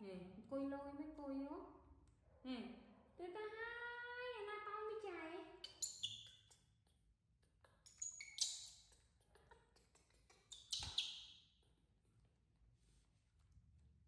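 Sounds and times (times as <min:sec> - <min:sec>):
baby monkey squealing: 0:05.6 - 0:06.5, 0:07.8 - 0:09.0, 0:10.5 - 0:11.4.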